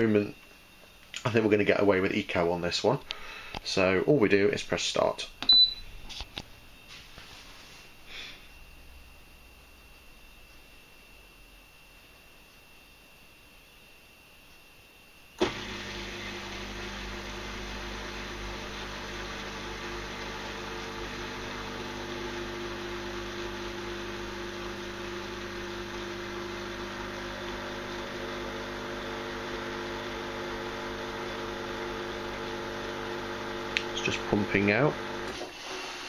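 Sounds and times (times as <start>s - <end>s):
dishwasher pump humming: 15.4s - 36.0s.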